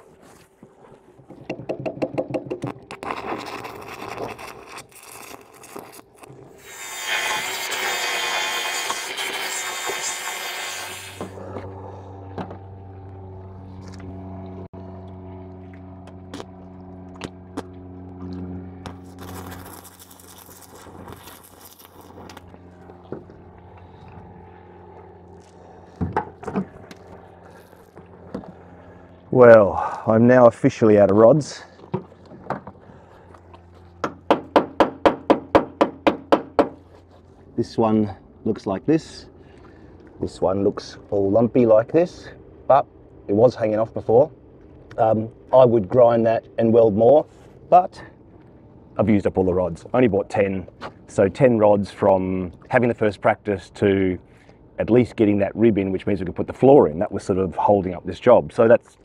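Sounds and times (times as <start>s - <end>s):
welding arc crackling: 2.9s - 11.3s, 18.8s - 22.5s.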